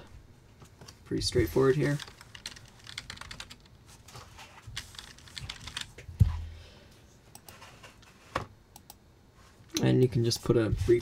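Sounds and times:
typing on computer keyboard: 2.0 - 3.7, 4.8 - 6.0.

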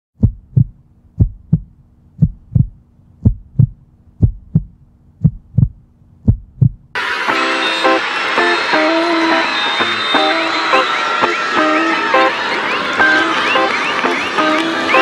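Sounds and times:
faint low hum: 0.2 - 7.0
heartbeat thumps: 0.2 - 7.0.

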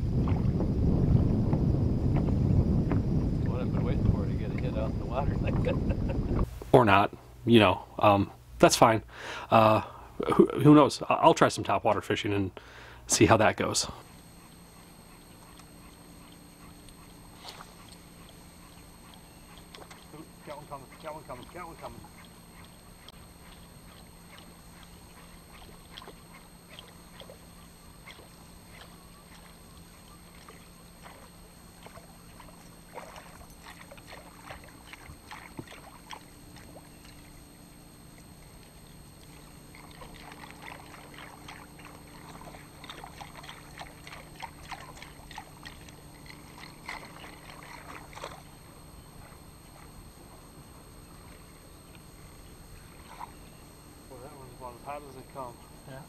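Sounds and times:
waves lapping against boat hull: 0.0 - 6.7, 14.0 - 54.7
steady low hum: 0.0 - 56.0
light splashing and ticking: 15.2 - 48.7.

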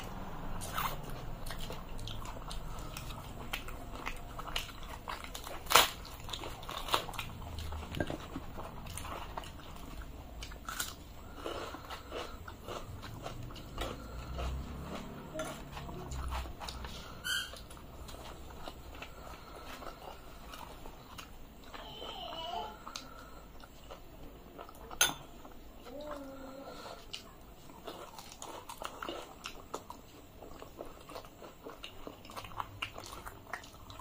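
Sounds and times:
people chewing and biting: 0.0 - 34.0.

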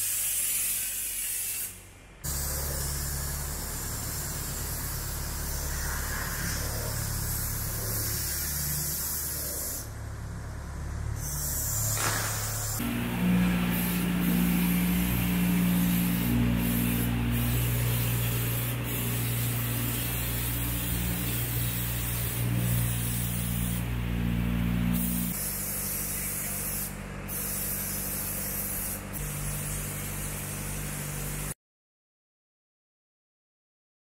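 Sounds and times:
paint spray gun hissing: 0.0 - 9.9, 11.2 - 31.6
machine humming low: 2.3 - 9.0, 9.9 - 25.4.

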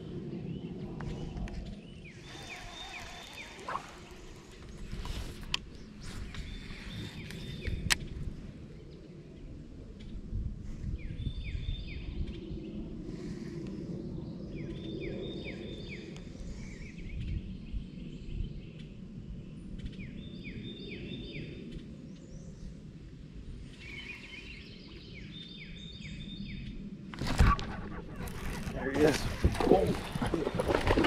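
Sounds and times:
songbird singing: 0.0 - 10.2, 11.0 - 12.9, 14.1 - 22.8, 23.7 - 31.0
steady low rumble: 24.7 - 31.0.

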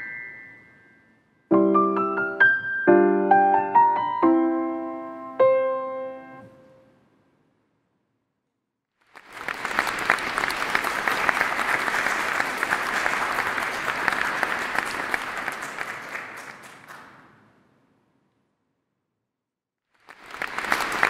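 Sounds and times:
audience applauding: 9.0 - 17.6, 19.9 - 21.0.

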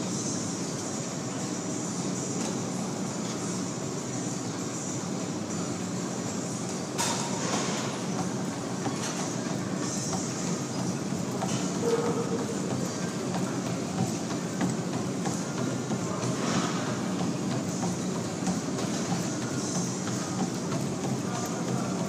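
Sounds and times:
treadmill belt humming: 0.0 - 22.0
quick footfalls on treadmill belt: 6.0 - 22.0.

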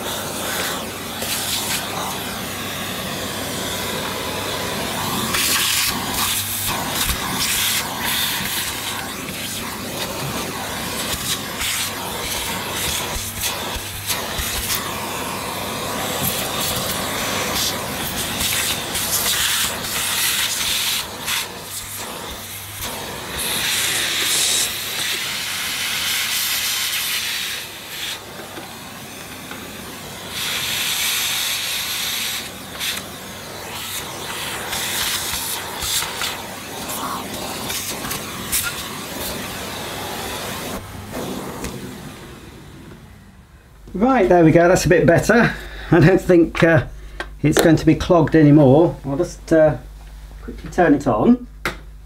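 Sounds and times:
vacuum motor hum: 0.0 - 45.4
vacuum airflow hissing: 0.0 - 52.0.

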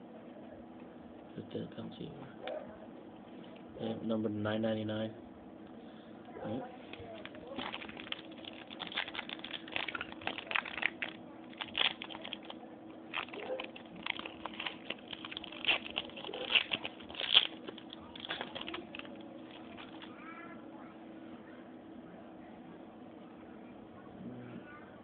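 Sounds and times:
faint low hum: 0.0 - 25.0
card pack wrapper crinkling: 7.0 - 20.2.

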